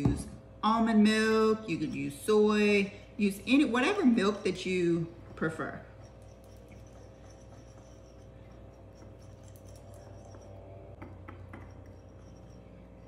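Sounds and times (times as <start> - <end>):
utensil scraping a ceramic bowl: 3.9 - 13.0.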